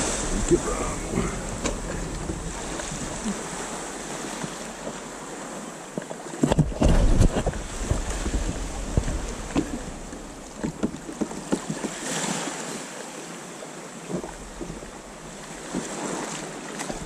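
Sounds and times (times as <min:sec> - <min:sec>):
wind buffeting microphone: 0:00.0 - 0:12.0
water sloshing: 0:00.0 - 0:13.3, 0:14.0 - 0:17.0.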